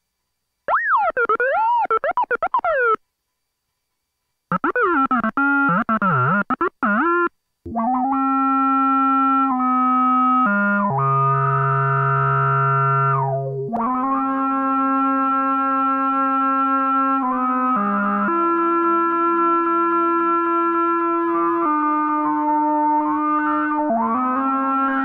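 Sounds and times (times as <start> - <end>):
analog synthesizer notes: 0.7 - 3.0, 4.5 - 16.4.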